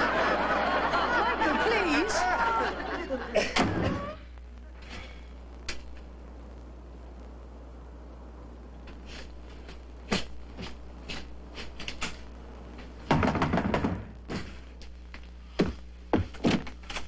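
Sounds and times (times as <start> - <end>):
knocks on wooden door: 13.1 - 14.1.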